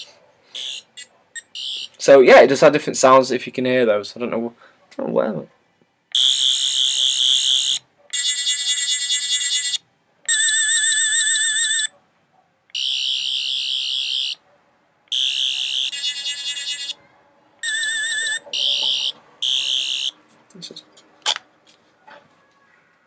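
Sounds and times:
toy high buzzing warble: 0.5s - 2.0s, 6.2s - 11.9s, 12.7s - 14.4s, 15.1s - 17.0s, 17.6s - 20.2s.

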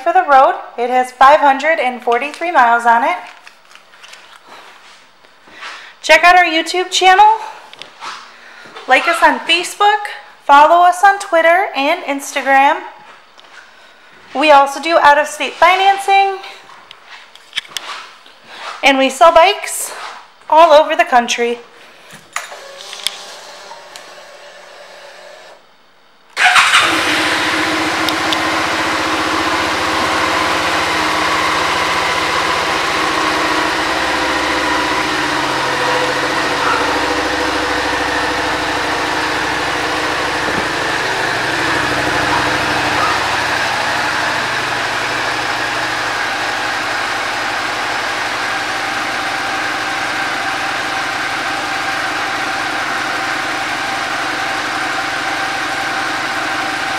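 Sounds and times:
motorcycle engine starting and idling: 26.4s - 56.9s.

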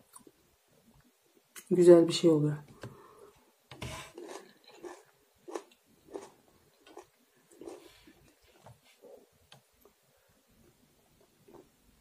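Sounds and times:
person chewing: 0.0s - 0.4s, 4.1s - 8.6s.

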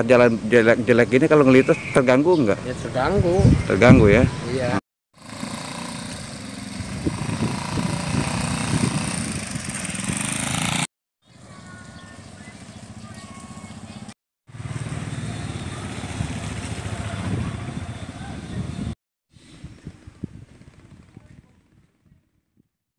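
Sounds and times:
small motorcycle engine running: 5.2s - 18.8s.

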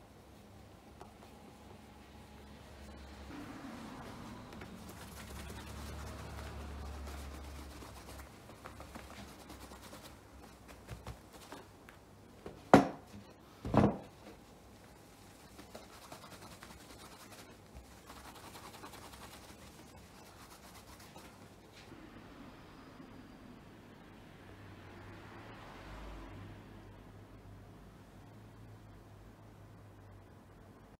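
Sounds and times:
brush rubbing leather shoes: 3.8s - 11.7s, 14.8s - 21.6s.

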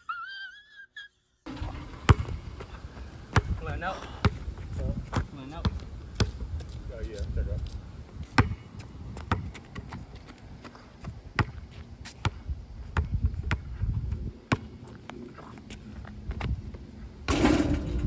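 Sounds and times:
basketball bouncing on asphalt: 1.5s - 6.8s, 7.6s - 15.1s.

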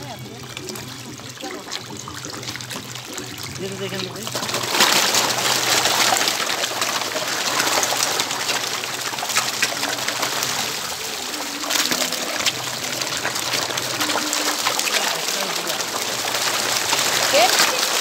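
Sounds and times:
fish splashing and gulping at surface: 0.0s - 18.0s.

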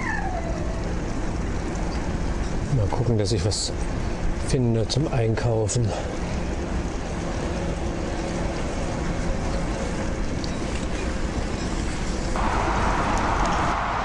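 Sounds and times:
road traffic rumble: 0.0s - 14.0s
loud hiss: 12.3s - 14.0s.

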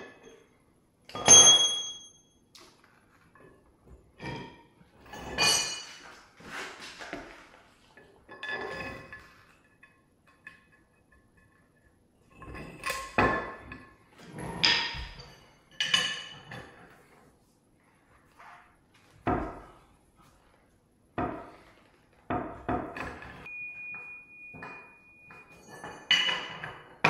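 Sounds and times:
metal tools clanking: 3.2s - 6.3s, 12.3s - 17.1s, 22.6s - 27.0s.

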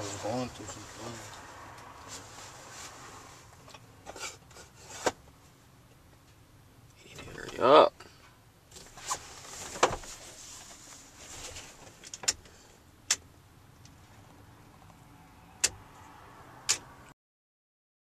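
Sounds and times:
sharp clicks and knocks: 15.6s - 15.8s, 16.7s - 16.9s.

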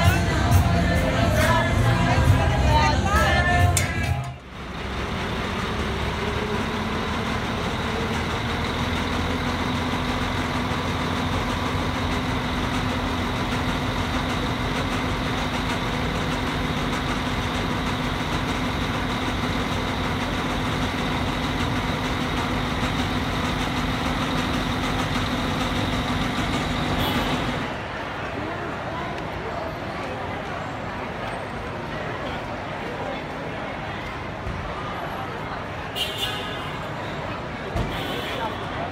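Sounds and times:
ferry engine idling: 0.0s - 28.8s.

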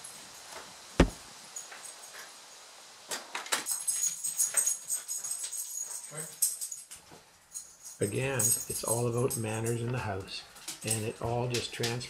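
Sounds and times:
light knocks: 1.0s - 1.2s
dog tags jingling: 3.7s - 11.3s.

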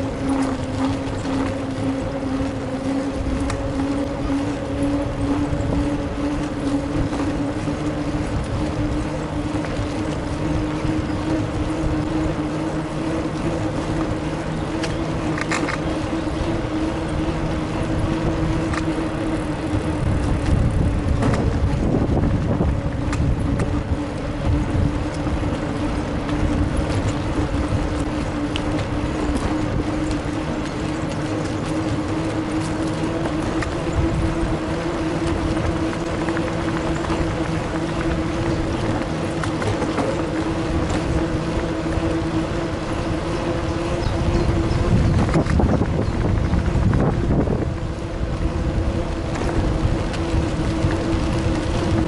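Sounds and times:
bicycle hum: 0.0s - 52.0s
wind rumble on microphone: 0.0s - 52.0s.

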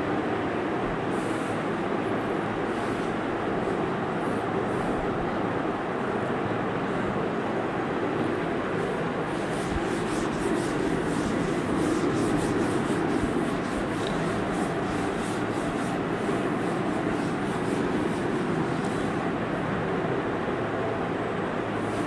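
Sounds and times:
steady background rushing noise: 0.0s - 22.0s
duster rubbing on blackboard: 8.8s - 19.3s, 21.8s - 22.0s.

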